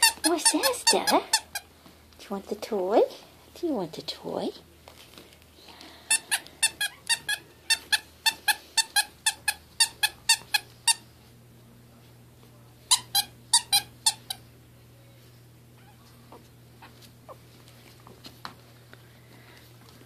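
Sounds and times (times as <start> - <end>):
squeaky toy squeaks: 0.0 - 1.7, 6.1 - 11.0, 12.9 - 14.4.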